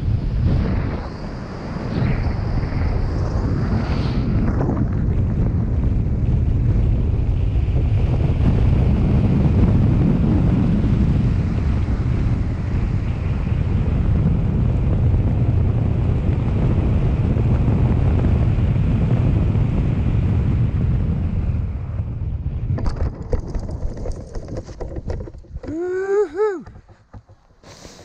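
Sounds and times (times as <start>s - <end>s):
wind rushing over microphone: 0.0s - 27.2s
person's voice: 25.6s - 26.8s.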